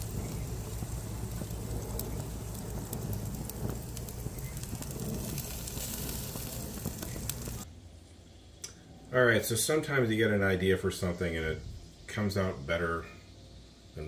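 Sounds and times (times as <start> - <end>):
meat sizzling on a grill: 0.0 - 7.7
low rumble: 0.0 - 8.4.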